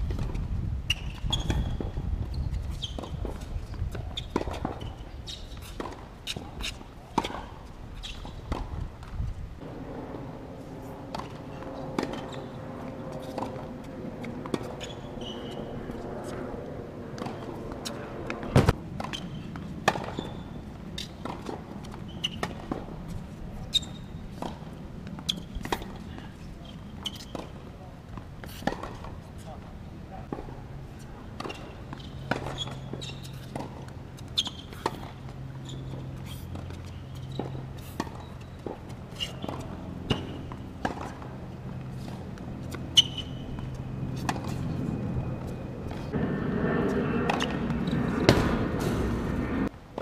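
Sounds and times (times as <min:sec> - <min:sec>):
shoes squeaking on court: 0:00.0 - 0:49.7
tennis ball bouncing: 0:11.0 - 0:16.0, 0:17.1 - 0:26.1, 0:31.3 - 0:44.8.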